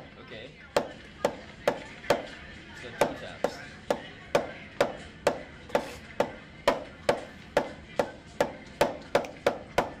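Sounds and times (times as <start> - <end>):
drumsticks striking practice pad: 3.0 - 10.0.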